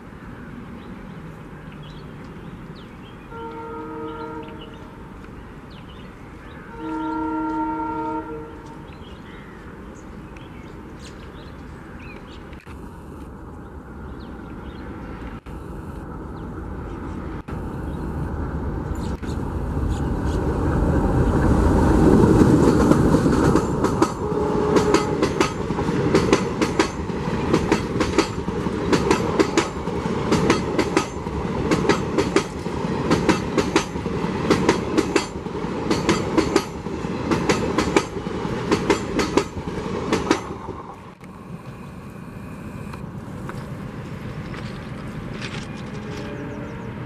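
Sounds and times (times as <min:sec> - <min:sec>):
diesel locomotive engine: 0:00.0 - 0:47.0
train wheels clattering over rail joints: 0:22.2 - 0:40.9.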